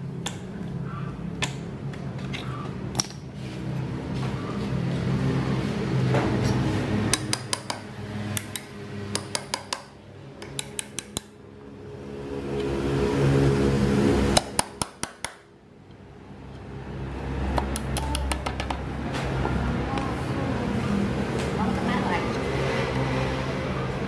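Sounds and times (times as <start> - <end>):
hammer tapping metal: 7.1 - 11.4, 14.4 - 15.5.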